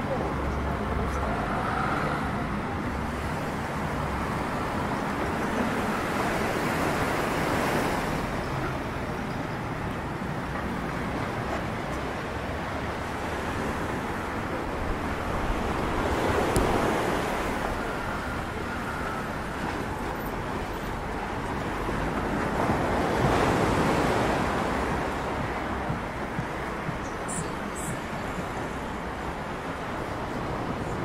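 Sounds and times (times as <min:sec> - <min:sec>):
sea waves washing against shore: 0:00.0 - 0:31.0
wind buffeting microphone: 0:00.4 - 0:31.0.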